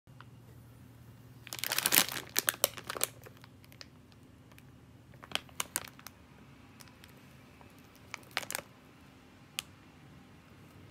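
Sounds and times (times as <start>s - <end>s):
plastic packet crinkling: 1.4s - 4.6s, 5.2s - 6.2s, 6.8s - 8.7s.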